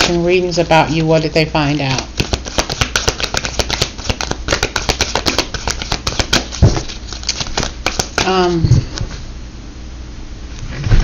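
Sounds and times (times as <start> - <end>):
cards being shuffled: 0.9 - 8.4.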